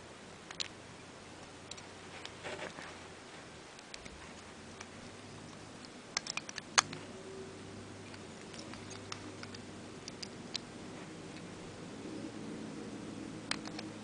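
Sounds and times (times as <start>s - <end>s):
plastic parts clicking together: 5.5s - 7.0s.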